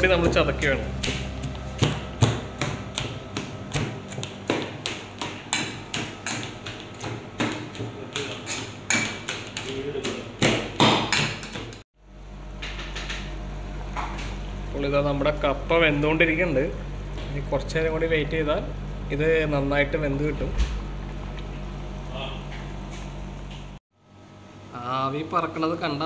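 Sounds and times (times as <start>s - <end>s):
pot boiling: 18.7s - 23.5s.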